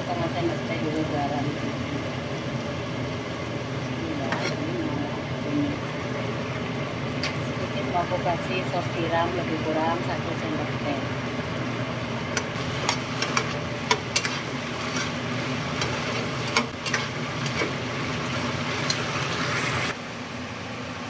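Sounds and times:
vegetables sizzling in pan: 0.0s - 20.4s
steady low hum: 0.0s - 21.0s
metal spatula scraping pan: 4.2s - 4.7s, 12.7s - 17.8s.

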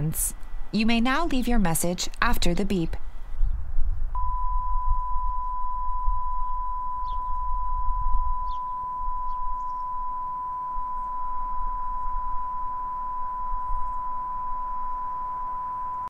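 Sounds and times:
long steady beep tone: 4.2s - 16.0s.

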